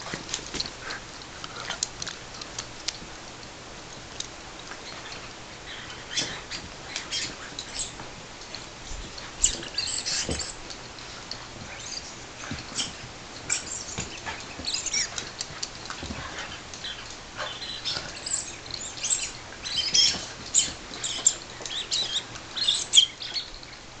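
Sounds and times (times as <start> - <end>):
dogs scuffling: 0.0 - 23.7
squeaky toys squeaking: 16.9 - 23.4.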